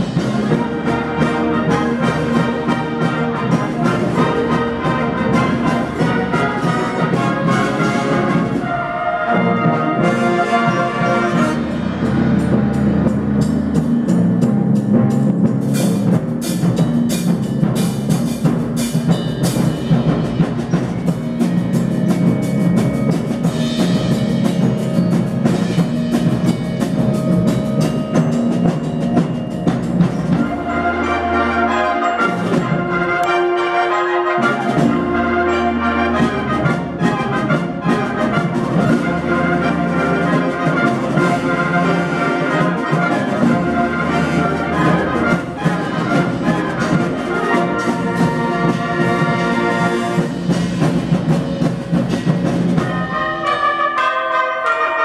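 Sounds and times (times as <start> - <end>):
brass band playing: 0.0 - 55.0.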